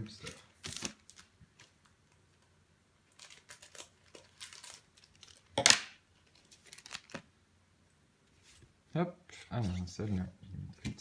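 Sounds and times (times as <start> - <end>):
foil pack crinkling: 3.0 - 5.6, 6.2 - 7.3
foil pack ripping: 3.1 - 5.5, 6.4 - 7.2.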